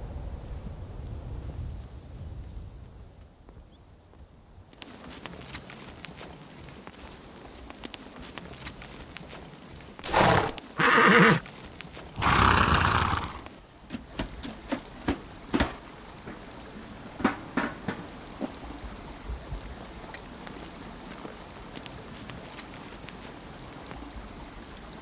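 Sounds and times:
hoof thuds on leafy ground: 4.8 - 18.8, 20.3 - 24.0
horse whinnying: 10.0 - 11.5, 12.2 - 13.5.

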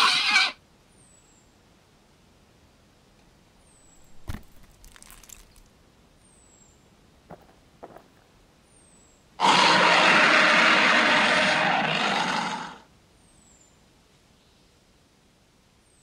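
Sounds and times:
dinosaur roar: 9.4 - 12.8.

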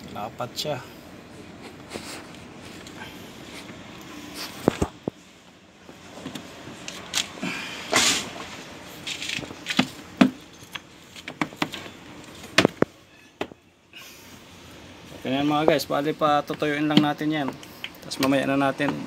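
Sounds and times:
rubbing sounds: 1.5 - 2.8.

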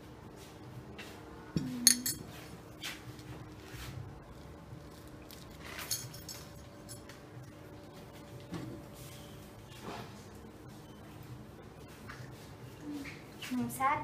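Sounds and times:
utensil clinking against a dish: 1.6 - 2.5.

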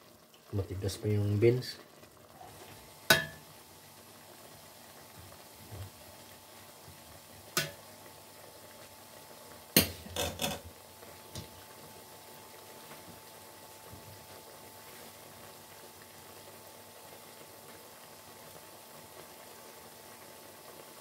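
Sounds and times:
faint steady simmer: 0.0 - 21.0.

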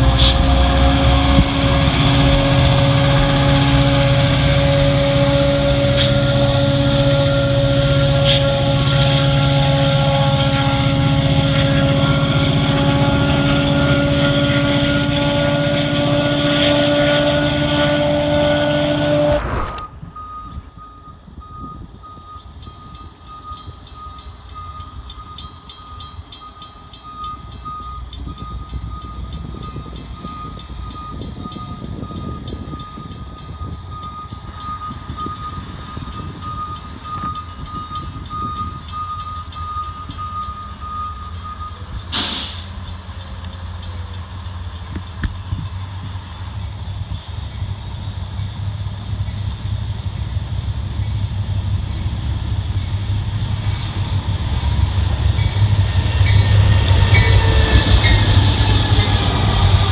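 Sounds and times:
diesel train rumble: 0.0 - 59.9
brief whoosh: 18.7 - 20.4
crossing warning bell dinging: 20.0 - 53.9, 54.6 - 59.9.

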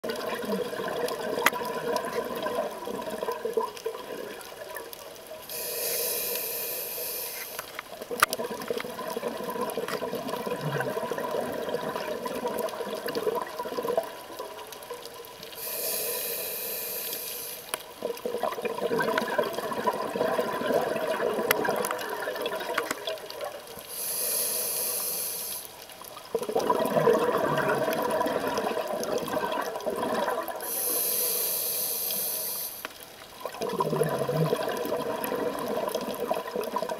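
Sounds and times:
gurgling rush of bubbles: 0.0 - 4.9, 8.0 - 14.8, 18.0 - 23.6, 26.2 - 30.8, 33.3 - 36.9
regulator hissing inhales: 5.5 - 7.7, 15.6 - 17.8, 23.9 - 25.7, 30.6 - 32.9.

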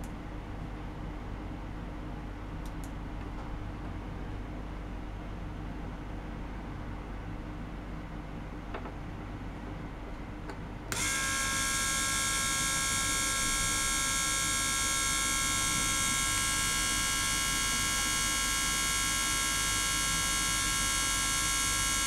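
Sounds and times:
electric pump whining: 10.9 - 20.0.

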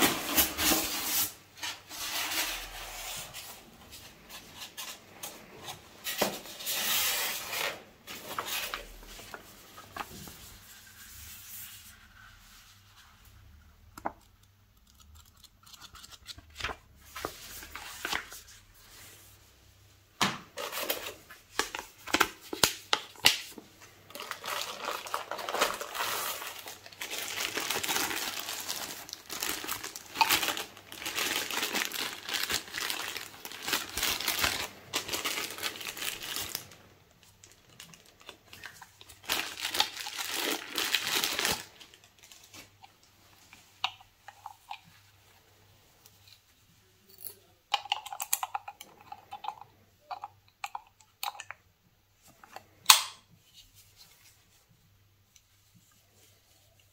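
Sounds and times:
plastic bag crinkling: 23.3 - 42.8.

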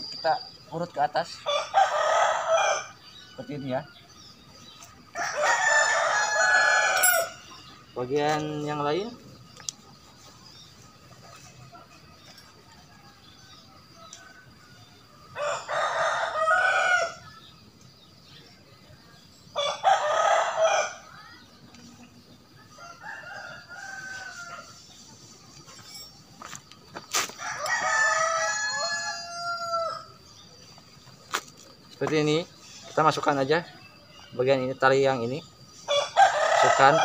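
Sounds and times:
rooster crowing: 1.4 - 4.0, 5.1 - 7.4, 12.6 - 17.4, 19.6 - 21.1, 22.5 - 24.8, 27.4 - 30.2, 35.8 - 37.0.

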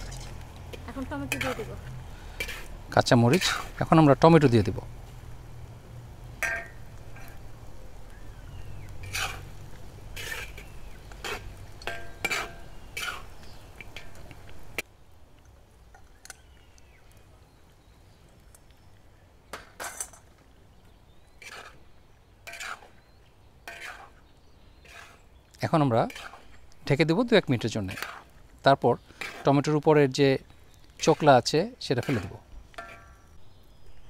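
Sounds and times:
metal spatula scraping wok: 0.0 - 3.8, 6.4 - 7.4, 9.0 - 14.2, 21.4 - 24.2, 24.8 - 25.3, 25.9 - 26.6, 27.7 - 28.4, 29.0 - 29.8, 31.0 - 33.3
frying in hot oil: 0.0 - 34.0.

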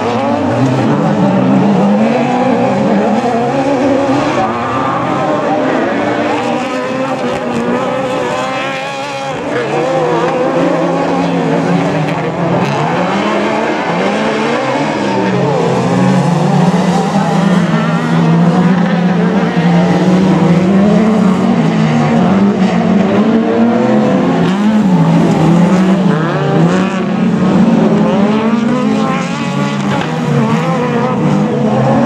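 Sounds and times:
buggy engines revving: 0.0 - 32.0.

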